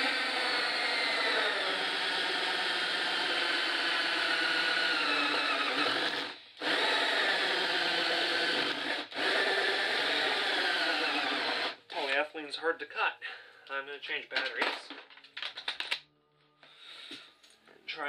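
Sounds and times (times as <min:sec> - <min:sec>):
drill hole saw grinding plastic: 0:00.0 - 0:12.1.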